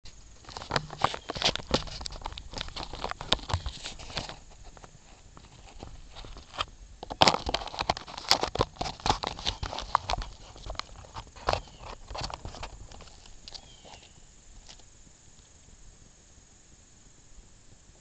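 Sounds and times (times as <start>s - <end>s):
fingers rubbing on camera: 0.4s - 14.8s.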